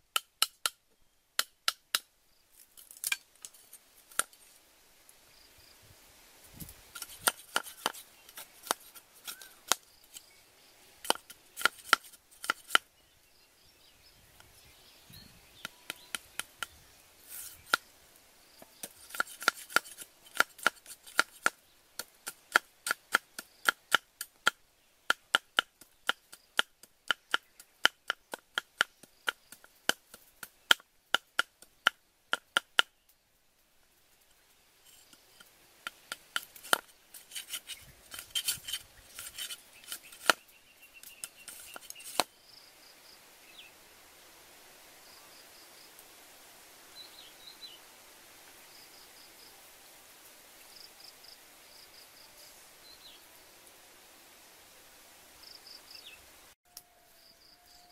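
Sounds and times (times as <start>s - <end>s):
cleaver chopping bamboo on wood: 7.0s - 9.8s, 11.0s - 12.8s, 15.6s - 16.8s, 18.8s - 32.9s, 35.8s - 40.4s, 41.2s - 42.3s.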